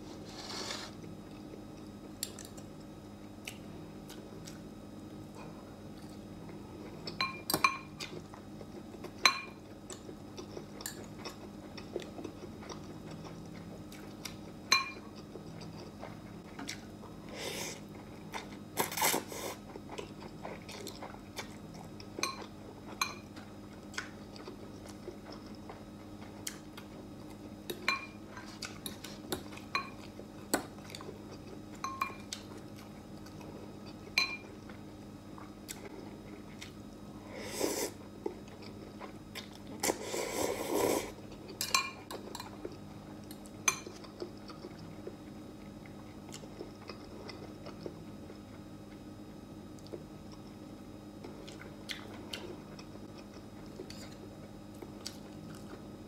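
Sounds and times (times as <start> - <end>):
chewing: 8.0 - 16.9, 17.8 - 34.8, 51.2 - 55.8.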